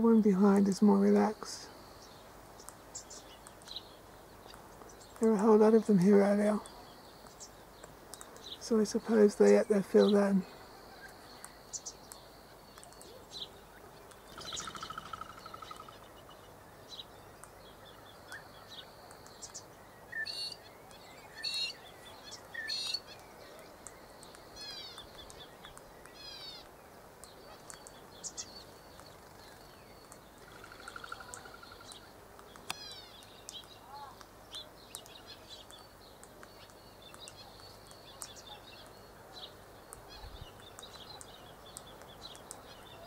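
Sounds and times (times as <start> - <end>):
birds chirping: 0.0 - 43.0.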